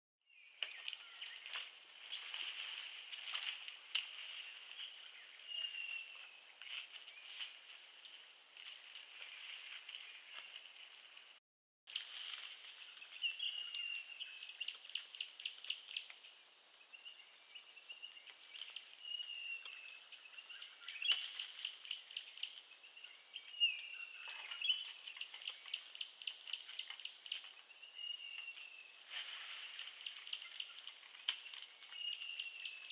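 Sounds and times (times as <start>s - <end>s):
whistled bird calls: 4.4s - 7.4s, 13.2s - 16.1s, 18.0s - 29.0s, 29.7s - 32.9s.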